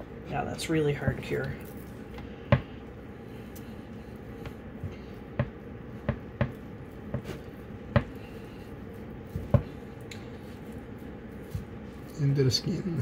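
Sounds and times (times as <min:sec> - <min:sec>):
knife tapping a wooden board: 0:05.4 - 0:07.3, 0:07.9 - 0:08.2.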